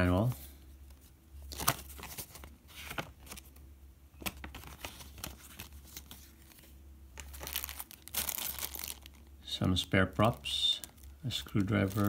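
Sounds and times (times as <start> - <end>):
paper rustling and crinkling: 0.3 - 3.6, 4.2 - 9.3, 10.2 - 12.0.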